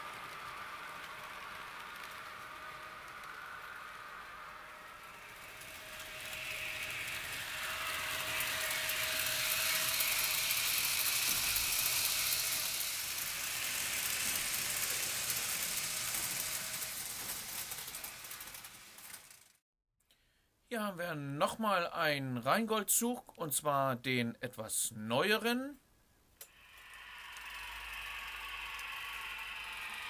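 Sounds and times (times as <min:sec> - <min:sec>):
faint motor hum: 0:00.0 - 0:19.1, 0:26.4 - 0:30.0
model train wheels clattering: 0:00.0 - 0:19.6, 0:26.4 - 0:30.0.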